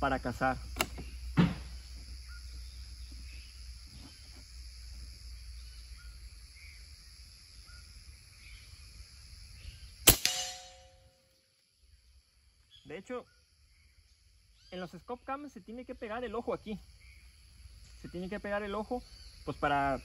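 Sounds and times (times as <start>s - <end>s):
insects buzzing: 0.0s - 20.0s
faint bird chirps: 0.4s - 10.0s, 10.6s - 20.0s
air rifle shot: 10.0s - 11.0s.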